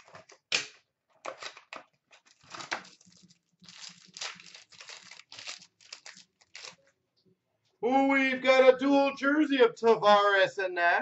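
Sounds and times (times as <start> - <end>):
wrapper crinkling and tearing: 1.2 - 6.9.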